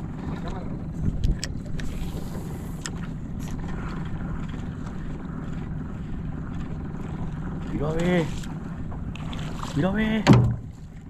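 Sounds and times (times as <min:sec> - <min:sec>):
wind on microphone: 0:00.0 - 0:07.4
outboard motor idling: 0:00.0 - 0:11.0
low knock of rod handling: 0:10.2 - 0:10.8.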